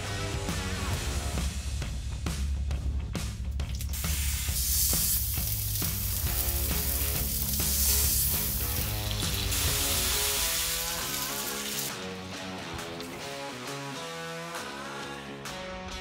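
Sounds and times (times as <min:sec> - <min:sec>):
meat sizzling on griddle: 0:03.8 - 0:12.0
guitar music: 0:05.3 - 0:16.0.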